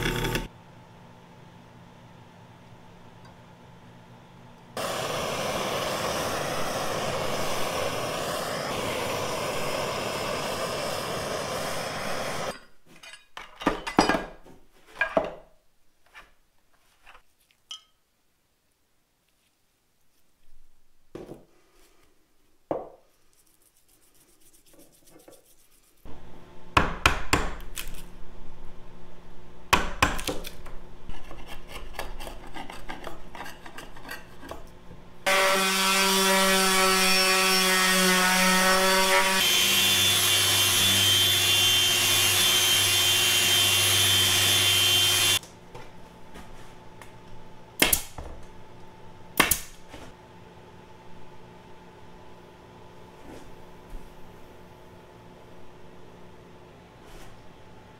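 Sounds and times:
orbital sander on wood: 4.8s - 12.5s, 35.3s - 45.4s.

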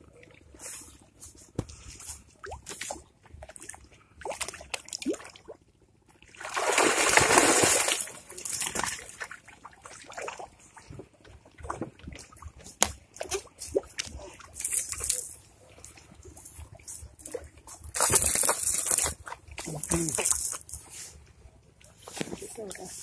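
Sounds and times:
water pouring and splashing off net: 6.3s - 10.7s, 16.9s - 20.9s
small splashes: 6.3s - 11.0s, 16.7s - 20.8s.

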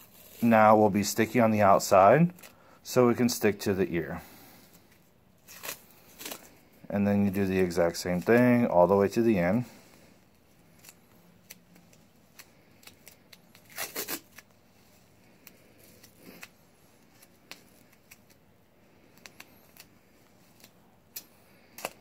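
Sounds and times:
tape ripping off roll: 12.7s - 14.5s.

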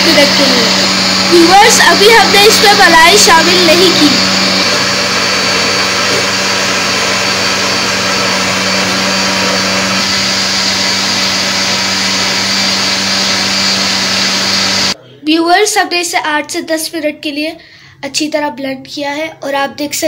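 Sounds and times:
blender motor whirring: 0.0s - 15.0s.

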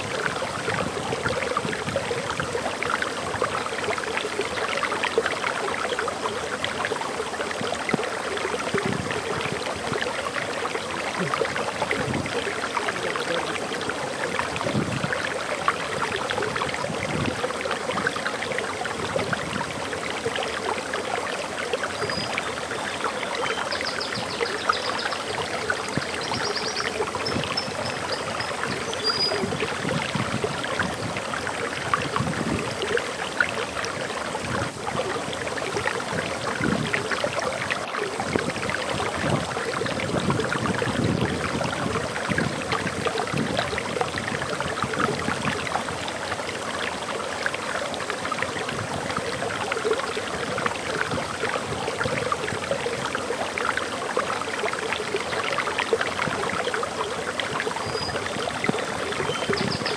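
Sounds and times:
water rushing over waterfall: 0.0s - 59.9s
high bird chirp: 26.3s - 29.5s.

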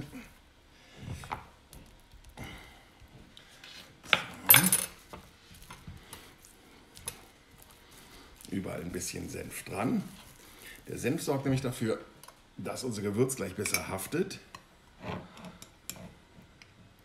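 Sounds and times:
smearing on meat: 5.2s - 11.5s.

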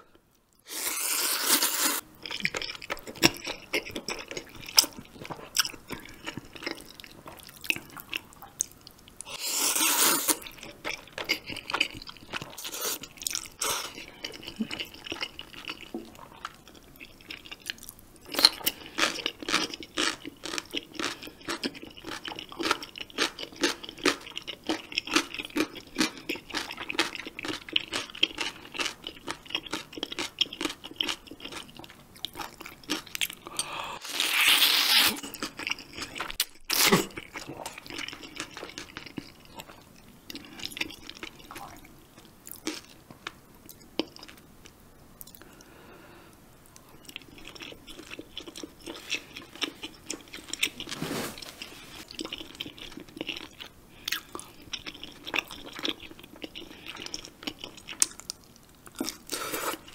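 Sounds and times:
wet chewing: 46.8s - 51.0s, 51.6s - 59.9s.

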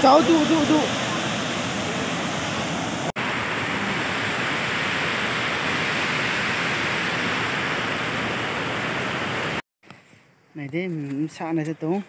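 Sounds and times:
waterfall rushing: 0.0s - 9.6s.

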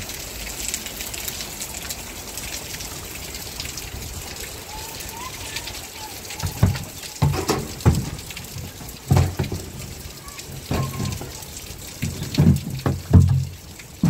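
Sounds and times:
steady rain: 0.0s - 14.0s
plastic jerrycans knocking: 6.4s - 14.0s.

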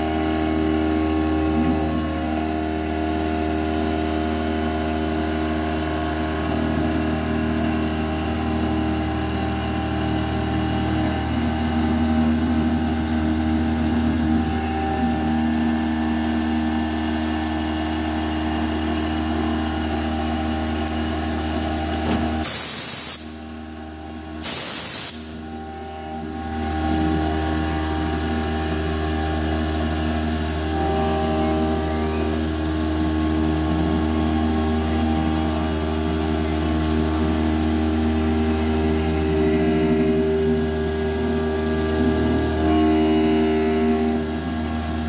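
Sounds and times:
milling machine cutting steel: 24.2s - 45.0s
compressed air blasts hissing: 24.4s - 25.3s.

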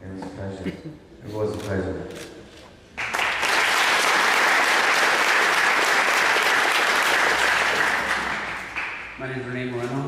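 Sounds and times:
crowd applauding: 3.0s - 9.3s.

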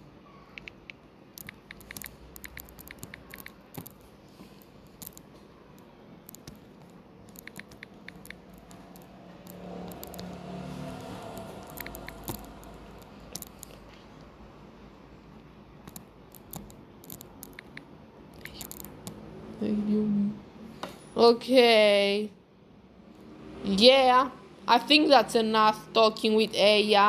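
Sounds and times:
typing taps on phone keyboard: 0.6s - 4.0s, 6.3s - 8.8s.

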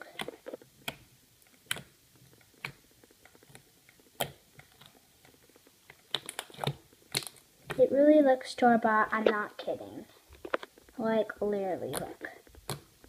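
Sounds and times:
fingertips poking wet slime: 0.0s - 7.9s, 11.0s - 13.0s.

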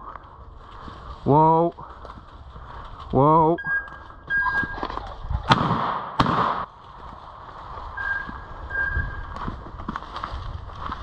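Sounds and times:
shotgun shots: 5.5s - 6.7s.

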